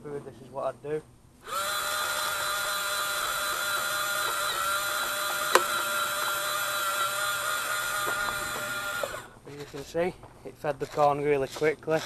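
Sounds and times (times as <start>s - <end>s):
electric motor whining: 1.4s - 9.9s
sharp click: 5.3s - 5.9s.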